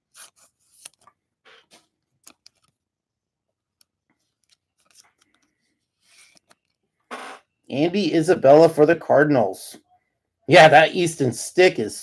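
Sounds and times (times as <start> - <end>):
trading cards clicking and rustling: 0.2 - 2.8.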